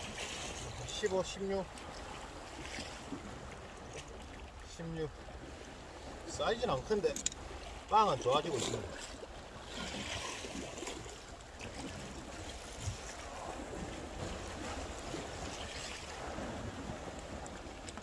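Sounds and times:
small waves washing against rocks: 0:00.0 - 0:18.0
wind rumble on microphone: 0:11.8 - 0:18.0.

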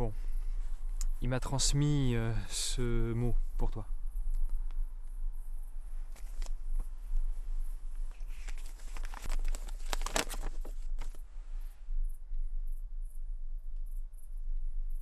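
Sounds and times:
low steady hum: 0:00.0 - 0:15.0
paper crinkling and rustling: 0:08.1 - 0:11.2.

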